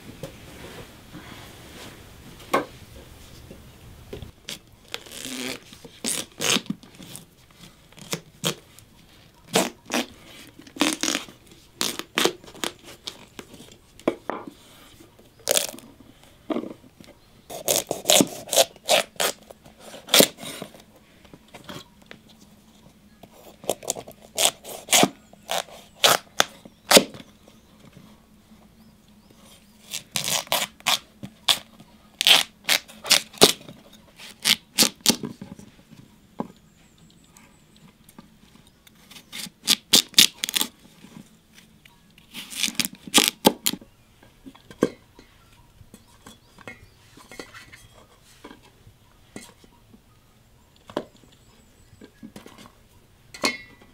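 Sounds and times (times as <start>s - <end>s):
knife scraping out seeds: 17.5s - 20.8s.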